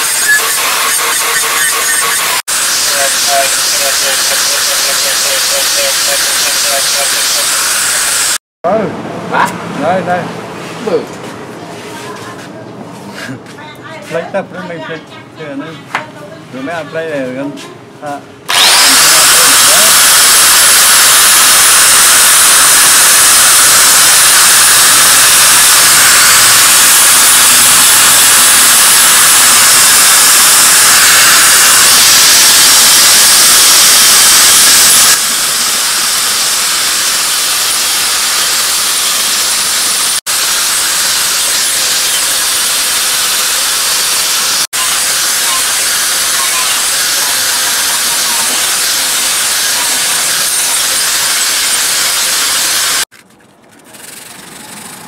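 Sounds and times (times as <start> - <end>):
angle grinder grinding steel: 0.0 - 8.4, 18.5 - 53.1.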